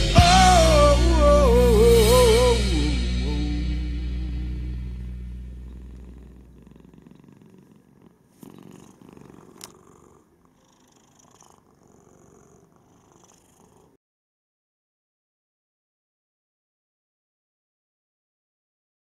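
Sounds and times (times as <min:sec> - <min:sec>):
background music: 0:00.0 - 0:05.7
cat purring: 0:05.2 - 0:14.0.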